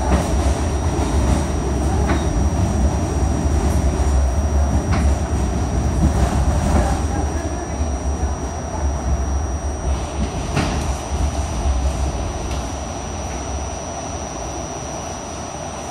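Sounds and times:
subway train rumble: 0.0 - 15.9
high whine: 6.7 - 15.9.

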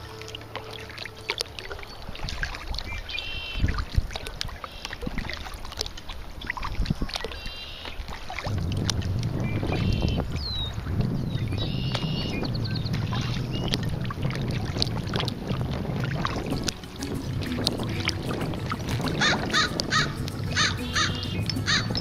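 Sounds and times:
blackbirds buzzy trilled songs: 0.0 - 3.9, 7.2 - 8.1, 9.2 - 14.0, 16.4 - 22.0
low rushing noise: 8.4 - 22.0.

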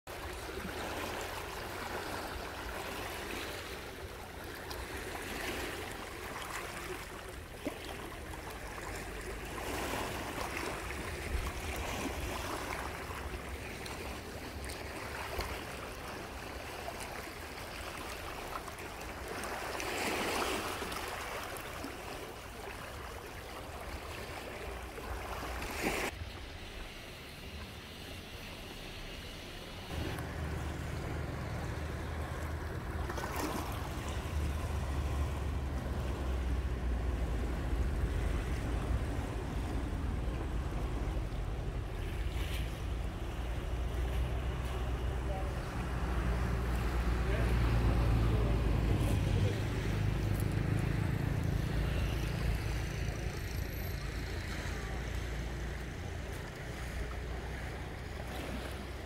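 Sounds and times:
low steady rumble: 29.8 - 58.2.

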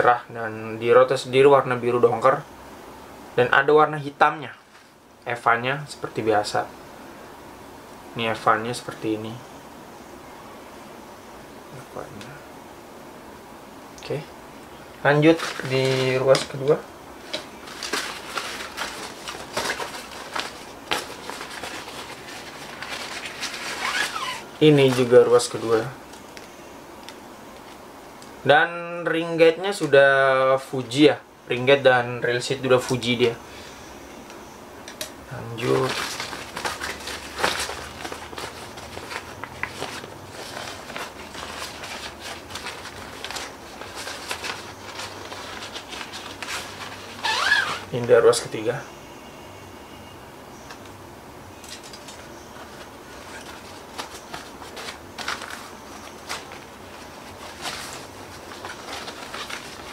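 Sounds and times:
faint low hum: 0.0 - 59.9
nylon cloth rustling: 15.2 - 25.7, 35.5 - 47.9, 52.0 - 59.9.

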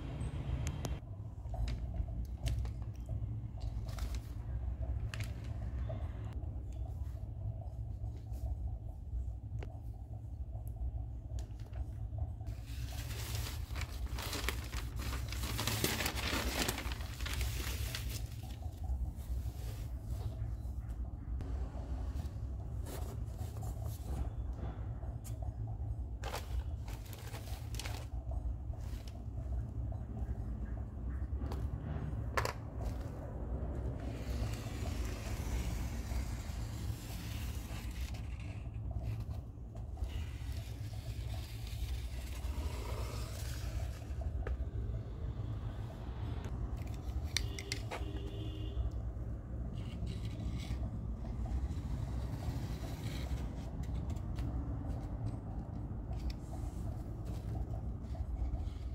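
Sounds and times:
steady low hum: 0.0 - 47.0
steady low rumble: 0.0 - 47.2
newspaper rustling and crinkling: 12.5 - 20.1, 26.2 - 29.4.

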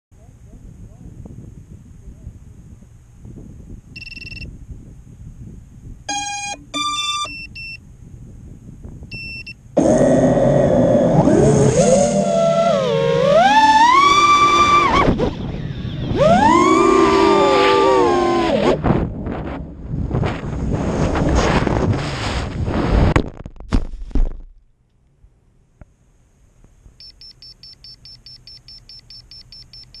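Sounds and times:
wind rushing on microphone: 0.2 - 6.1, 7.3 - 23.2
electronic startup beeps: 6.1 - 7.8, 27.0 - 30.0
drone motors spinning up: 9.8 - 19.5.

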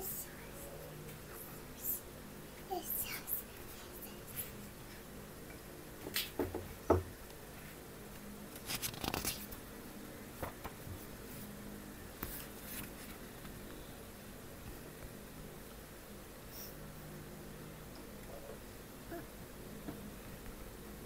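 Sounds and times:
fingers rustling a page: 8.6 - 9.6, 12.2 - 13.6.

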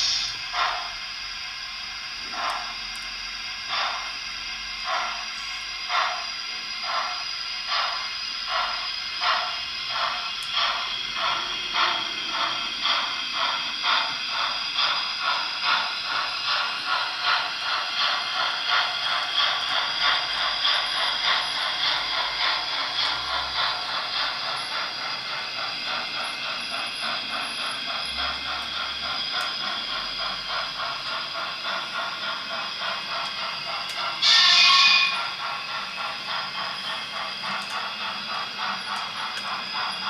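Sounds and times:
model locomotive steam chuffs: 0.0 - 40.0.

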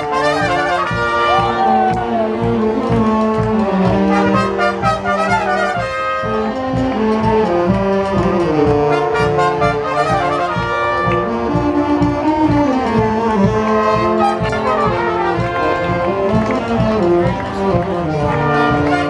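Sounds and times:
brass band playing marching tune: 0.0 - 19.0.

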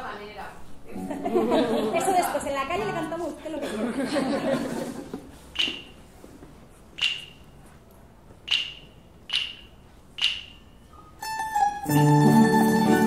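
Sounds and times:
sharp snaps with ringing tail: 8.4 - 10.8.

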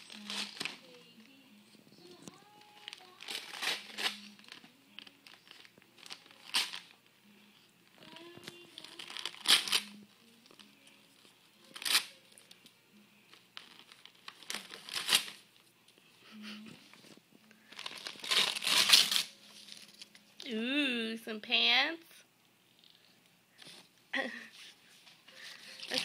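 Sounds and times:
paper ripping: 0.0 - 0.9, 2.3 - 7.0, 8.4 - 10.6, 11.7 - 12.2, 13.6 - 15.5, 17.6 - 19.9, 25.6 - 26.0
wrapping paper crinkling: 0.0 - 1.4, 2.0 - 7.1, 7.9 - 12.6, 13.3 - 15.6, 16.9 - 20.3, 25.3 - 26.0.

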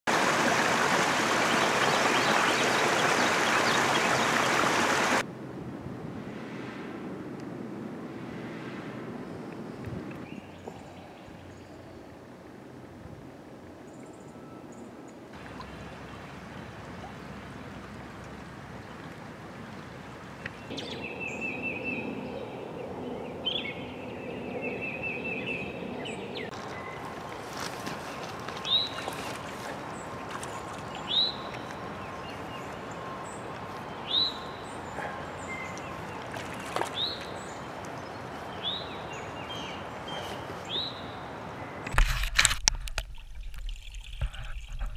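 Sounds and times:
stream water splashing over rocks: 0.1 - 5.2, 15.3 - 20.7, 26.5 - 34.8, 35.4 - 38.8, 41.9 - 44.9
bird singing trills: 20.5 - 27.0, 30.9 - 36.2.

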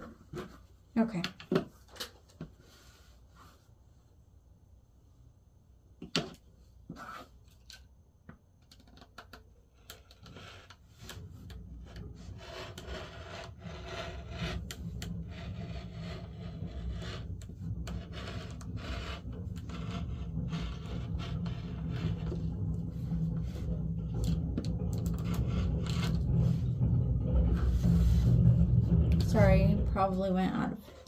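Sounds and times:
rotary cutter rasping through fabric: 11.8 - 22.4.

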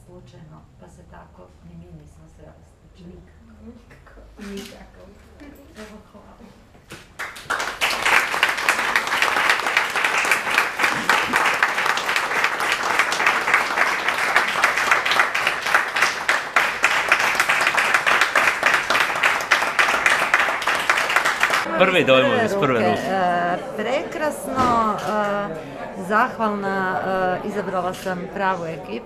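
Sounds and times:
audience applauding: 7.2 - 23.0.

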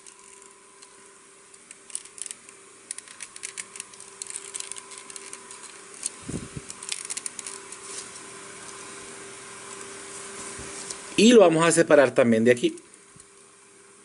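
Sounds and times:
plastic parts clicking and rattling: 1.5 - 7.8.

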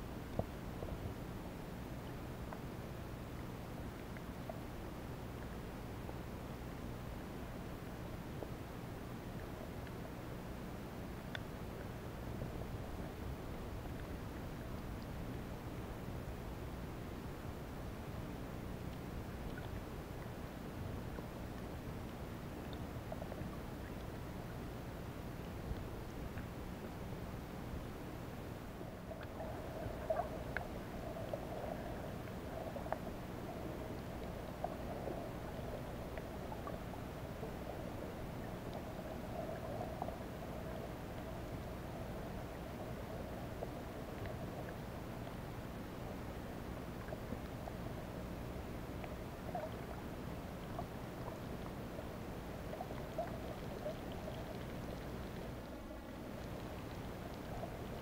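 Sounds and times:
muffled underwater hum: 0.0 - 58.0
faint clicks: 11.1 - 12.0, 18.8 - 20.4, 29.1 - 40.4
faint pops and ticks: 11.2 - 11.9, 19.4 - 20.3.

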